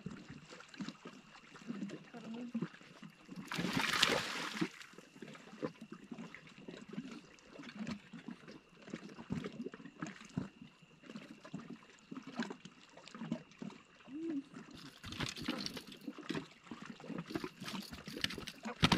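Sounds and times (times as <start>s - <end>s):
water lapping and trickling: 0.0s - 18.9s
water splash: 3.4s - 4.9s.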